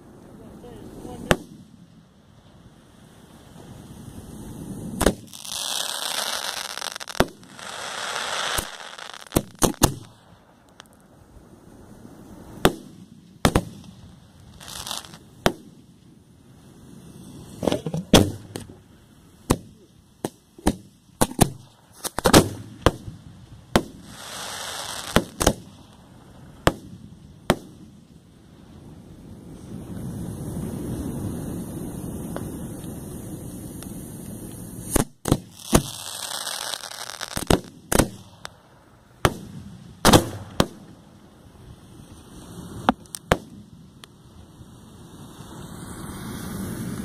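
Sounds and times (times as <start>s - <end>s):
fireworks hissing: 0.0s - 47.0s
fireworks bangs: 0.4s - 2.2s, 3.5s - 11.0s, 12.4s - 15.9s, 17.3s - 28.0s, 29.6s - 41.2s, 42.5s - 43.8s.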